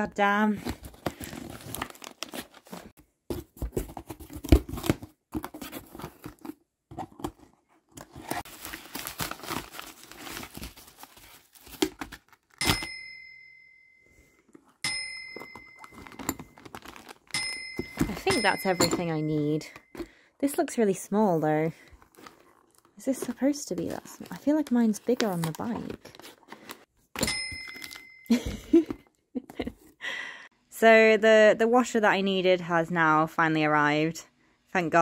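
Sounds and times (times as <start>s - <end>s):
cardboard and bubble wrap tearing: 0.9s - 3.0s, 8.0s - 12.6s, 16.0s - 17.3s
bell-like dings: 12.6s - 16.6s, 17.4s - 19.9s, 27.2s - 28.6s.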